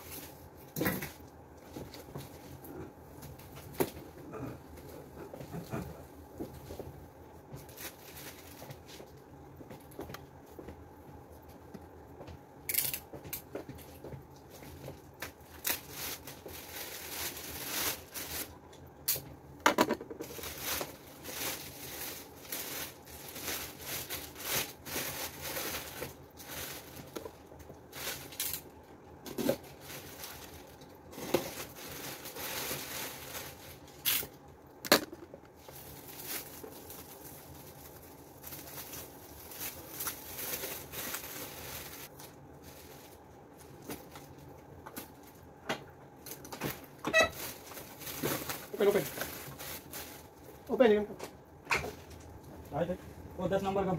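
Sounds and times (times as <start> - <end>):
plastic wrap crinkling: 7.5 - 10.0, 12.7 - 19.3, 20.0 - 34.8, 35.4 - 45.5, 46.1 - 51.1.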